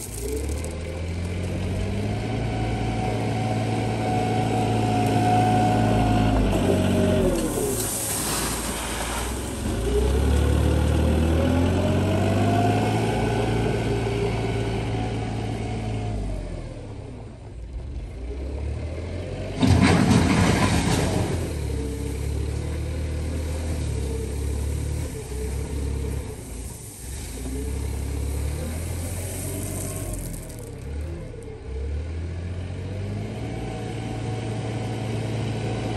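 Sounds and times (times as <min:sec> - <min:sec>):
gravel clattering: 0:00.0 - 0:01.9, 0:06.5 - 0:09.8, 0:19.6 - 0:21.8, 0:26.1 - 0:31.5
loader engine revving: 0:00.0 - 0:17.0, 0:18.2 - 0:35.9.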